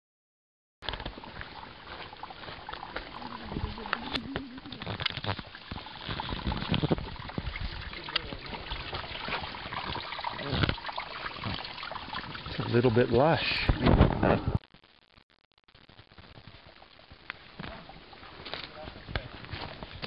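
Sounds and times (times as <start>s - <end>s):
footsteps: 0.8s - 10.8s, 16.4s - 20.0s
brook babbling: 0.8s - 13.8s, 16.5s - 19.5s.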